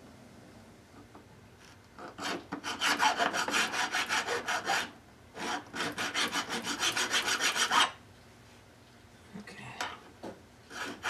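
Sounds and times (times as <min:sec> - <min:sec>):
file rasping on metal: 0:02.1 - 0:08.0, 0:10.7 - 0:11.0.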